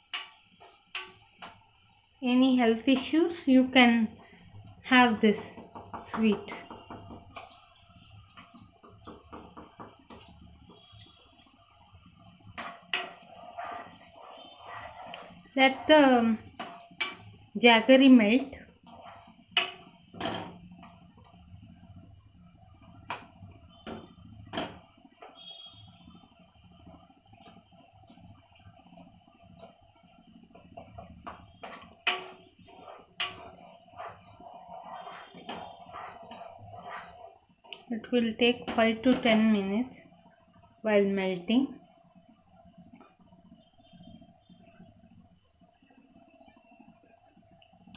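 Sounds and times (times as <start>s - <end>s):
spatula stirring: 0.0s - 40.6s
sugar sizzling in a pan: 0.0s - 47.9s
spatula knocking against pan: 5.5s - 7.4s, 8.8s - 10.3s
spatula knocking on pan: 5.5s - 7.4s, 8.8s - 10.3s, 18.9s - 20.6s, 30.6s - 37.2s.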